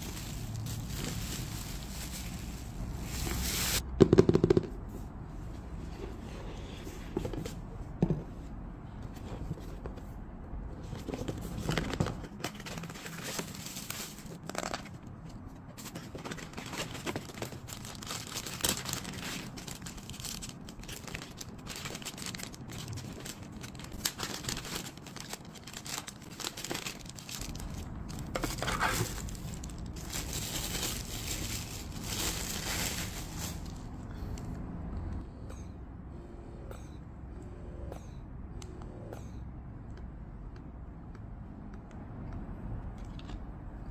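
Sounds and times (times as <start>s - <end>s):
plastic bags crinkling: 0.0s - 3.8s, 16.2s - 34.0s.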